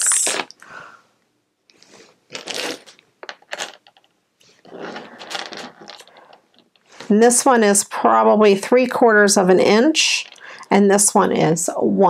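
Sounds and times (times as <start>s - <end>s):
plastic bag crinkling: 2.3s - 7.1s.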